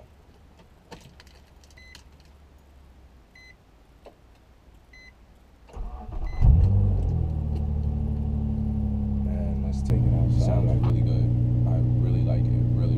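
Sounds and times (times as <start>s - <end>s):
car warning chime beeps: 3.4s - 3.6s, 4.9s - 5.2s, 6.2s - 6.6s
engine starter cranking: 5.7s - 7.2s.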